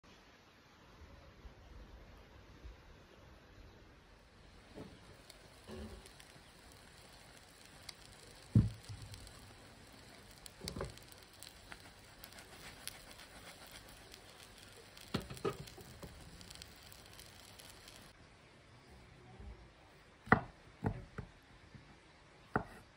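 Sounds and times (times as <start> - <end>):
omelet sizzling in a pan: 4.3 - 18.2.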